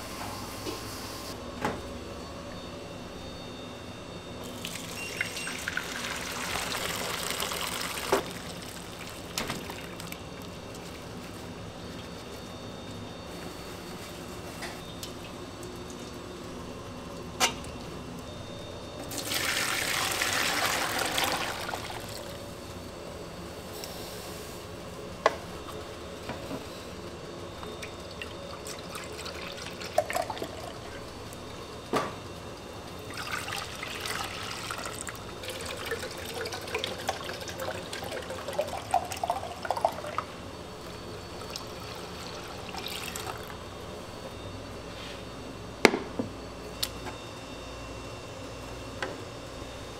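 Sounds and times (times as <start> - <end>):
liquid pouring into container: 4.5 - 10.6, 33.1 - 40.3.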